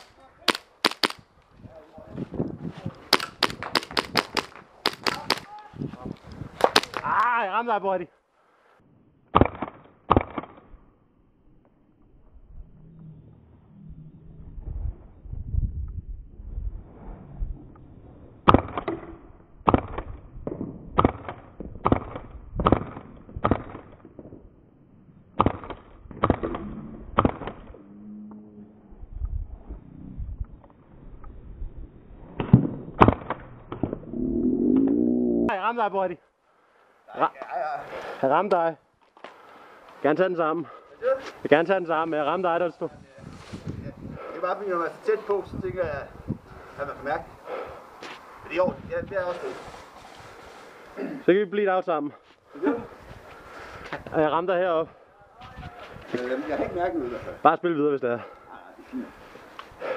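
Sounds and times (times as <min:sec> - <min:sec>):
airsoft pistol shots: 0:00.0 - 0:01.2, 0:03.1 - 0:05.5.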